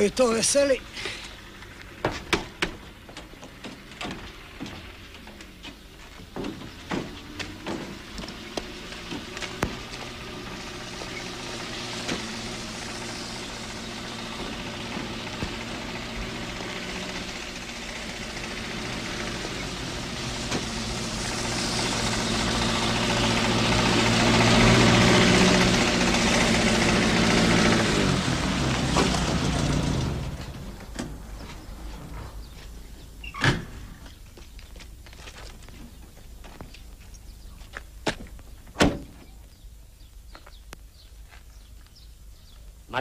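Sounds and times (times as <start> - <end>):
truck engine running: 0.0 - 33.2.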